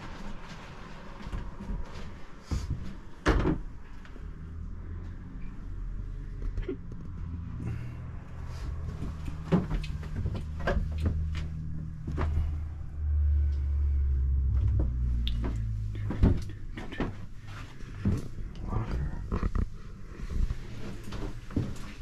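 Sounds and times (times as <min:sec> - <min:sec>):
knocks and clunks: 0:02.6 - 0:03.7, 0:09.0 - 0:12.6, 0:14.4 - 0:18.5
low steady rumble: 0:03.6 - 0:22.0.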